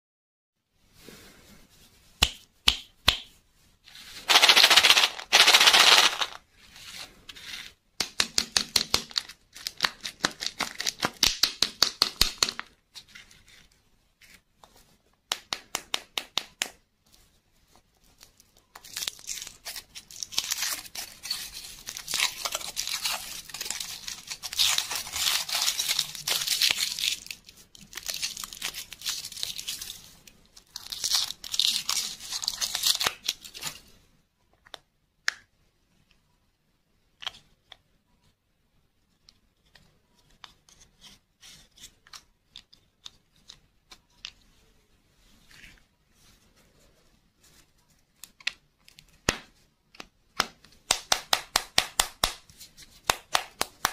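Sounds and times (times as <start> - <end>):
foil wrapper crinkling and tearing: 18.8 - 30.0, 30.6 - 33.7.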